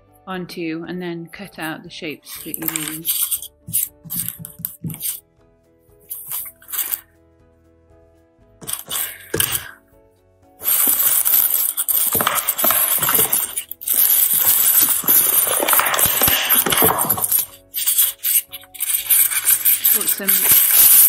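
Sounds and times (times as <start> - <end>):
rustling craft materials: 2.2 - 5.2, 6.1 - 7.0, 8.6 - 9.8, 10.6 - 21.0.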